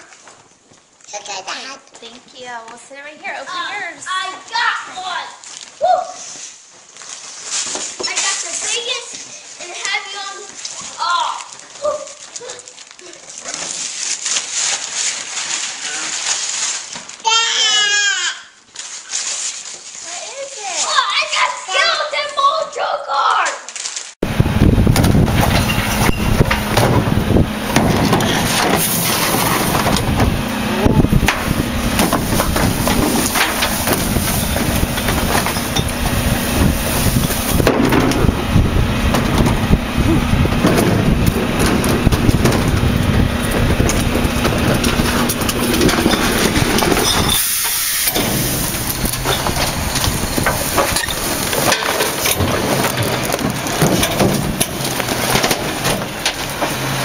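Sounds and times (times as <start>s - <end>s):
trash bags being crunched: 6.5s - 17.8s, 24.9s - 57.0s
garbage truck engine and hydraulics: 24.2s - 57.0s
steady low hum: 24.2s - 57.0s
carts knocking: 24.7s - 57.0s.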